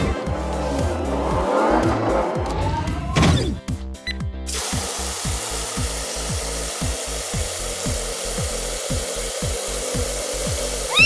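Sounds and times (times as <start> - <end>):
background music with low beat: 0.0 - 11.0
water spraying from nozzles: 4.5 - 11.0.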